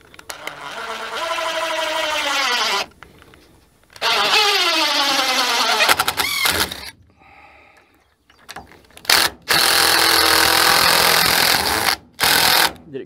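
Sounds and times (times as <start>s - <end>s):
cordless drill driving screw: 0.2s - 2.9s, 4.0s - 6.9s, 9.0s - 12.8s.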